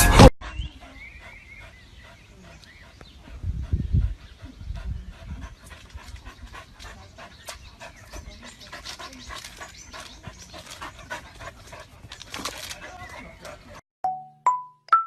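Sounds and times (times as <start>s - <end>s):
dog panting: 0.4s - 13.8s.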